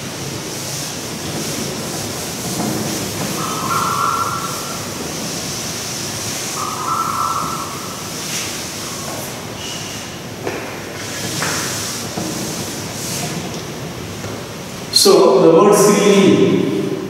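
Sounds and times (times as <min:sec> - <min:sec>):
room noise hiss: 0:00.0 - 0:17.0
chalk scratching on blackboard: 0:00.6 - 0:10.0, 0:11.0 - 0:13.4.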